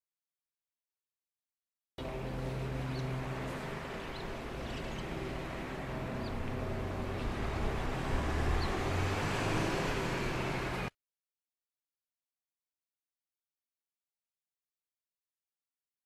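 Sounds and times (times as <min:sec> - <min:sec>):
low engine hum: 0:02.0 - 0:10.9
road traffic rumble: 0:02.0 - 0:10.9.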